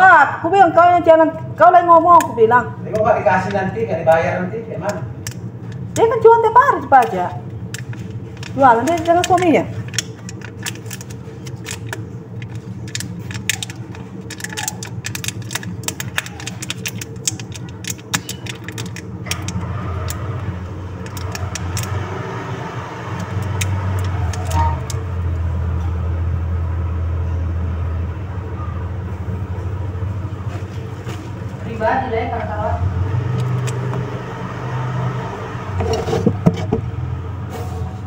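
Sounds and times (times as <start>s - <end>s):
vehicle engine rumble: 0.0s - 38.0s
plastic cup clicks and crackles: 6.9s - 20.2s.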